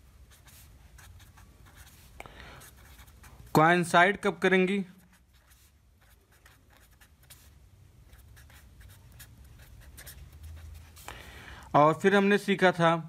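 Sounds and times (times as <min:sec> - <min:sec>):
felt-tip pen scratching paper: 0:00.3 - 0:03.5, 0:05.0 - 0:11.1.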